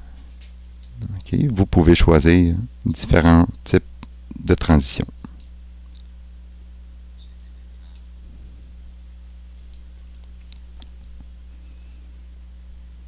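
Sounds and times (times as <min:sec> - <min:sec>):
low electrical hum: 0:00.0 - 0:13.0
computer mouse clicking: 0:09.6 - 0:10.9.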